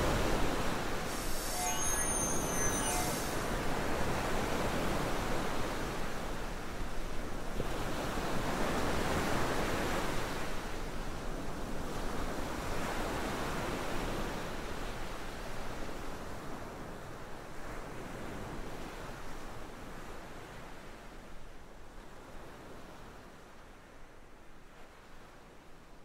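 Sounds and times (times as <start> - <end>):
ocean waves washing in: 0.0 - 6.3.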